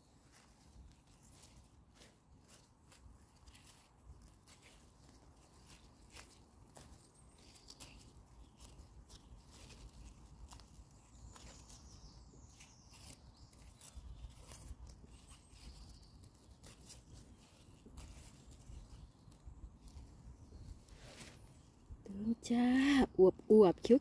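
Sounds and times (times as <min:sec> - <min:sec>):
plant stems snapping and rustling: 0:01.0 - 0:20.2.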